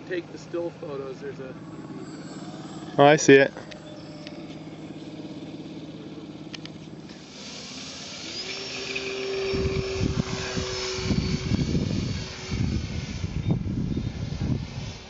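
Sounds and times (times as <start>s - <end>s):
model plane motors whining: 0.0s - 15.0s
wind buffeting the microphone: 9.4s - 15.0s.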